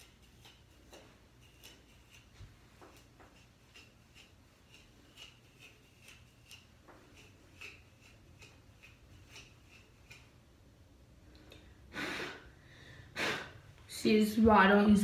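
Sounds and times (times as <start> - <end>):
pick scratching through hair: 0.0 - 10.6.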